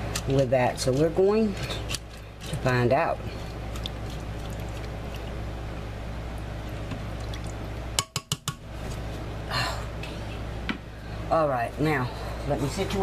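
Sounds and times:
steady low hum: 0.0 - 13.0
sharp taps on cookware: 8.0 - 8.6.

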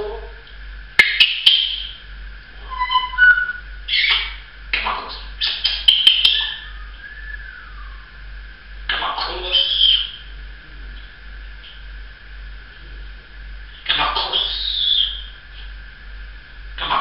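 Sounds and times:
parrot whistling: 1.0 - 2.0, 2.6 - 4.4, 5.4 - 8.2, 9.4 - 10.2, 14.0 - 15.4
parrot squawking: 2.6 - 8.2, 8.9 - 10.2, 13.8 - 15.4.

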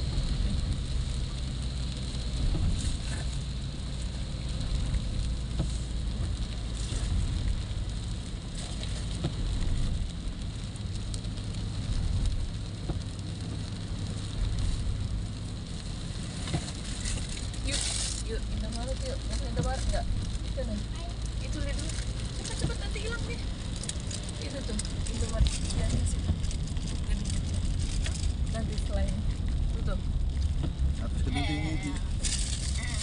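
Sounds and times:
low road rumble: 0.0 - 33.0
rain on a car windshield: 0.0 - 33.0
tyres hissing on wet road: 0.0 - 33.0.

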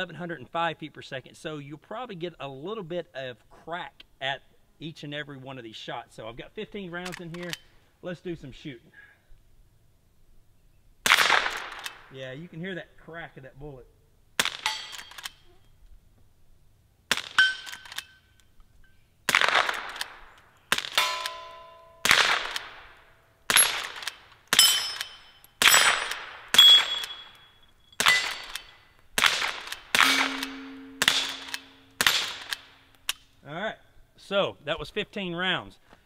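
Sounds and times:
suppressed rifle shots: 11.0 - 12.1, 14.4 - 15.3, 19.3 - 27.4, 28.0 - 33.2
steel targets ringing: 21.0 - 22.1, 24.6 - 28.9, 30.0 - 32.9.

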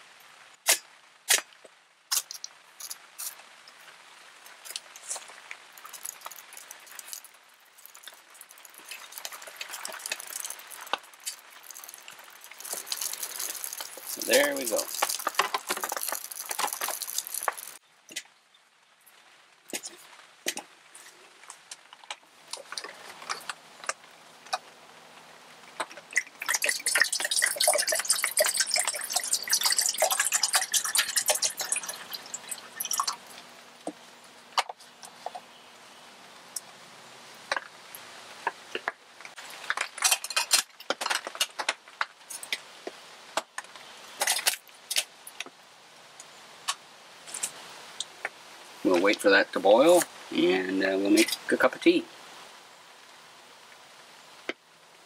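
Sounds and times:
twig fire crackling and popping: 0.6 - 35.4, 37.4 - 45.6.

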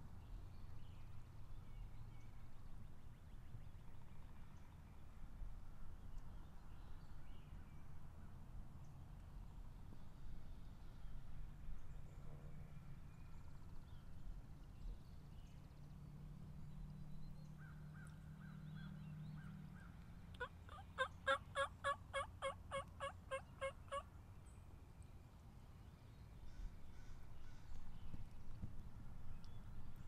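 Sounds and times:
wild turkey yelping: 20.4 - 24.0.

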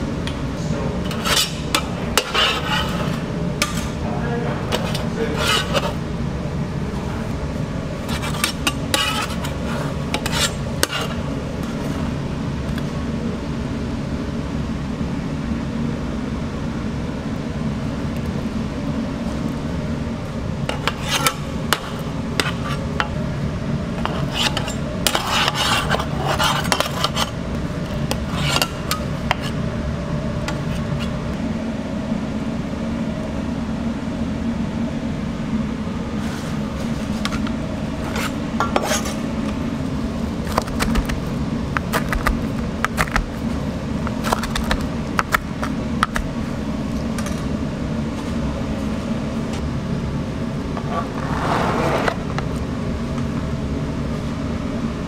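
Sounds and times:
low kitchen hum: 0.0 - 55.0
metal spatula scraping pizza pan: 1.1 - 3.8, 4.7 - 6.0, 8.0 - 11.9, 20.7 - 22.9, 24.0 - 27.4, 28.1 - 29.6, 38.0 - 39.2.

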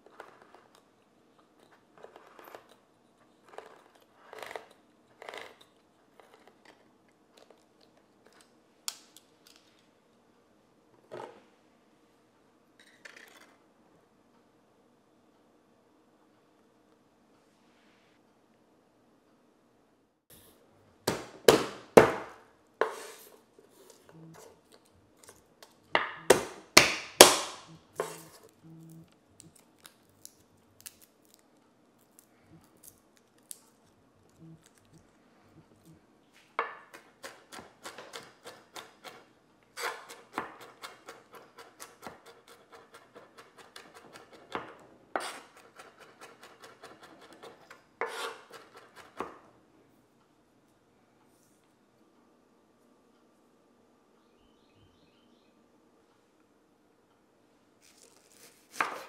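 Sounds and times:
fast knife chopping: 21.1 - 22.4, 26.0 - 28.3, 36.9 - 39.2, 39.8 - 49.3, 58.5 - 59.0.

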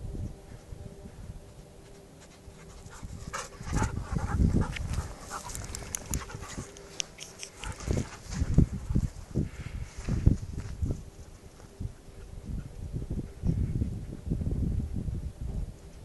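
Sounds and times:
dog panting: 2.6 - 8.2.

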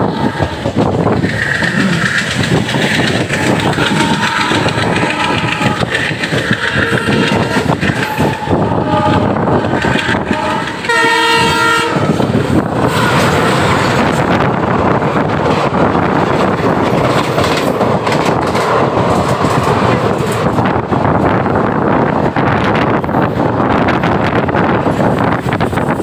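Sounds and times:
diesel locomotive horn: 0.0 - 0.8, 3.3 - 14.2
train wheels and rail clatter: 0.0 - 26.0
wind from passing train: 0.0 - 26.0.

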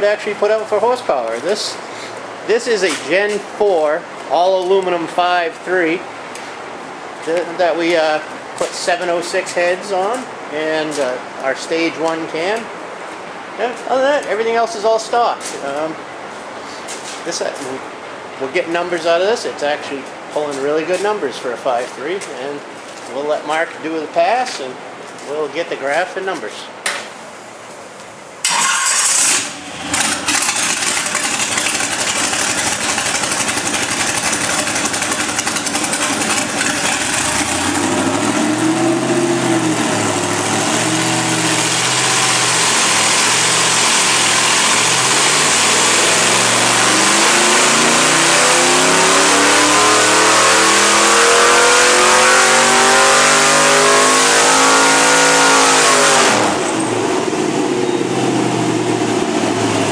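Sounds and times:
engine revving on a dyno: 28.4 - 59.9.

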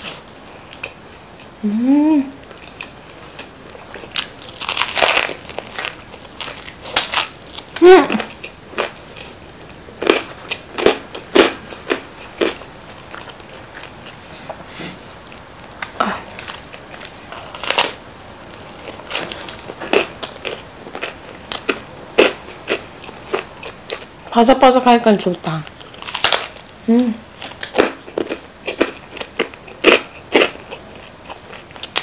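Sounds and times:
chewing crisp pizza crust: 2.4 - 18.0, 18.6 - 24.1, 25.4 - 32.0.

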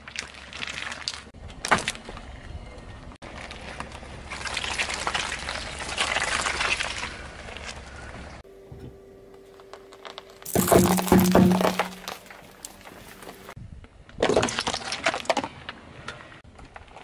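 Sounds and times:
tyre squelching soft gel: 3.4 - 7.9.

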